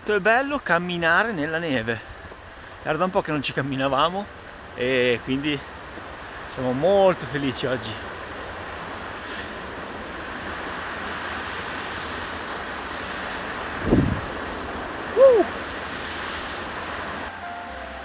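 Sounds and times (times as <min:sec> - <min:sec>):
wind on microphone: 0:09.7 - 0:17.3
rising and falling pitched sound: 0:17.3 - 0:18.0.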